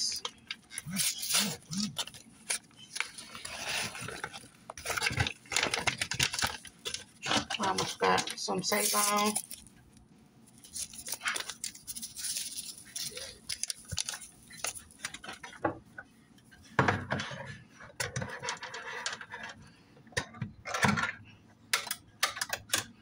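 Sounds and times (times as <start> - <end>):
foil packet crinkling and tearing: 0.0 - 9.7, 10.6 - 15.4
handling rustle and clicks: 1.6 - 15.6.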